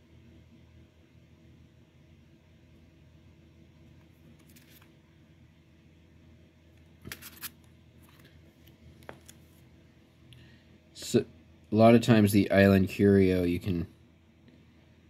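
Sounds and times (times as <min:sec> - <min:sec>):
plastic sleeves rustling: 0:04.3 - 0:04.9.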